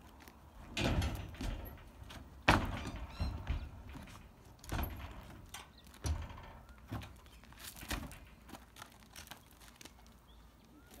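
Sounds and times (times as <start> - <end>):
hooves on wooden ramp: 0.6 - 9.0.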